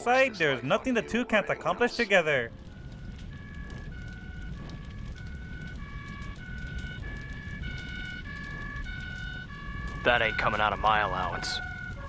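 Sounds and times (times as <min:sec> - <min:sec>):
low city rumble: 0:00.0 - 0:12.0
two-tone siren: 0:02.5 - 0:12.0.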